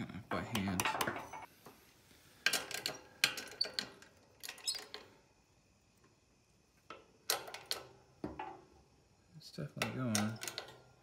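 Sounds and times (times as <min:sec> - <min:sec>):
metallic clicks and knocks: 0:00.5 - 0:01.5, 0:09.8 - 0:11.0.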